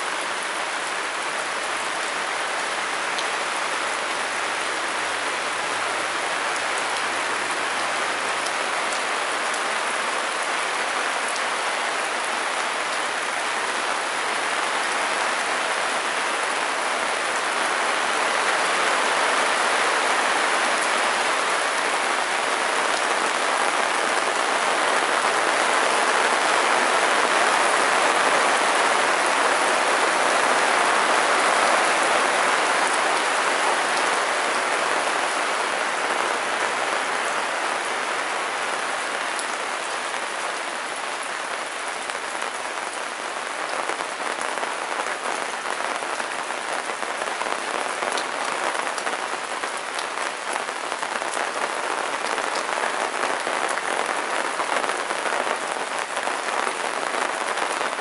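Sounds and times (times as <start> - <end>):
rain falling on cobblestones: 0.0 - 58.0.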